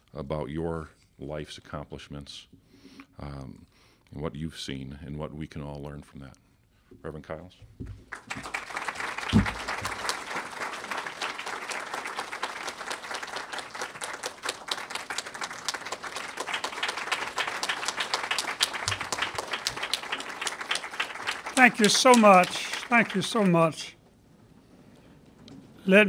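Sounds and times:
audience applauding: 8.0s - 24.0s.

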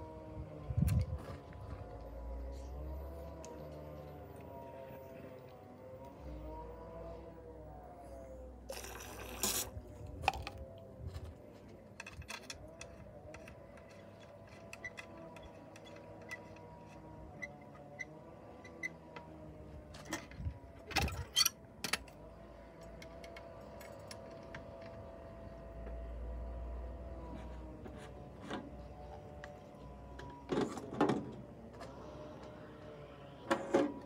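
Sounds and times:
small metal parts clicking: 11.9s - 17.0s.

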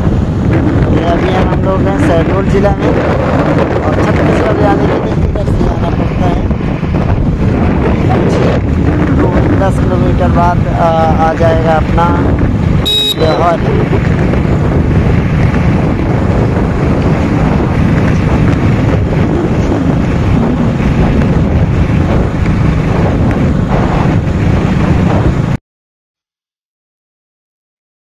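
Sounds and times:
wind buffeting microphone: 0.0s - 25.6s
motorcycle engine running: 10.6s - 25.6s.

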